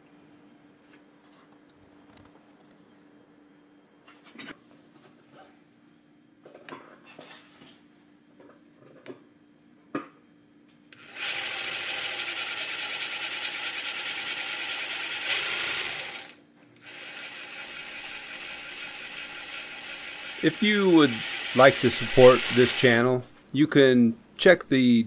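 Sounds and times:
overlock sewing machine stitching: 11.0s - 23.2s.

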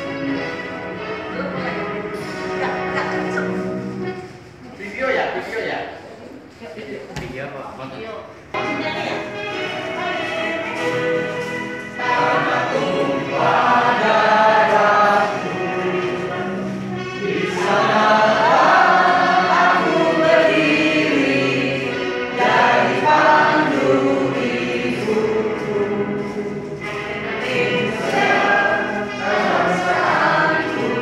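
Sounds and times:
adults and children singing: 9.6s - 31.0s.

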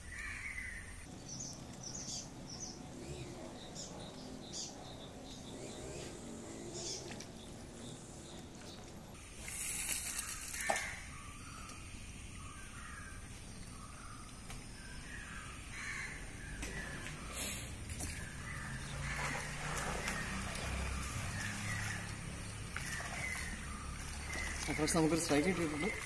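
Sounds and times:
birds cawing: 0.0s - 1.4s, 10.1s - 26.0s
short hiss: 9.4s - 10.7s.

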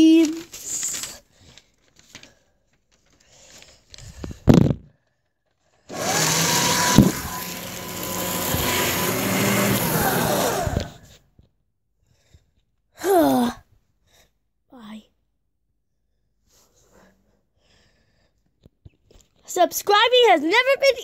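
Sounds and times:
small electric motor whirring: 5.9s - 11.0s.

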